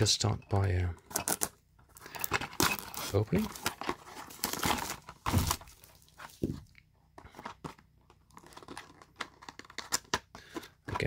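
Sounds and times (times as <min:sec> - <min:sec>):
plastic wrap crinkling: 0:01.2 - 0:06.7
cardboard box handling: 0:02.2 - 0:09.9.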